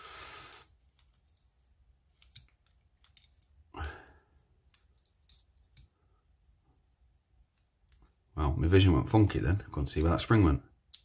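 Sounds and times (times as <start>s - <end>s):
tweezers clicking on lock pins: 2.2s - 3.6s.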